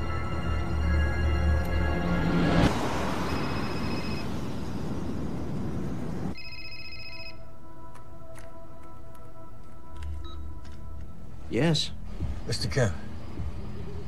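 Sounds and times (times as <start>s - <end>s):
telephone ringing: 3.3s - 4.3s, 6.3s - 7.5s
street noise hiss: 11.2s - 14.0s.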